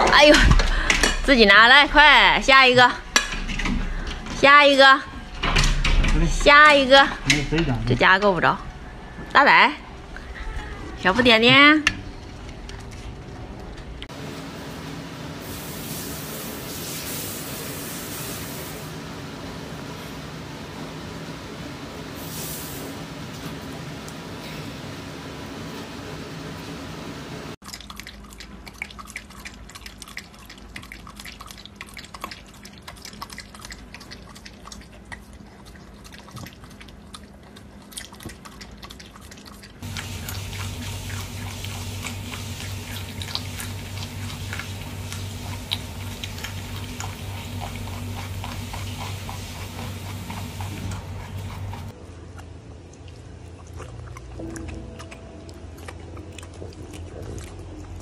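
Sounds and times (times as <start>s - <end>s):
rabbit chewing greens: 27.6s - 58.0s
steady low hum: 39.8s - 53.5s.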